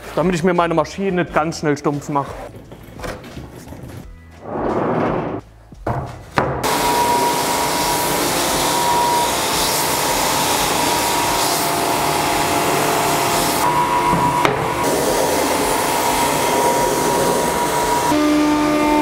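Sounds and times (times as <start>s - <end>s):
belt sander whining: 6.6s - 19.0s.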